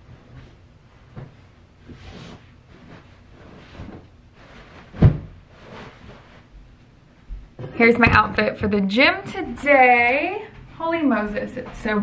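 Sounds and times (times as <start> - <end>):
pillows swishing and rustling: 0.0 - 6.5
dull thump: 4.9 - 5.4.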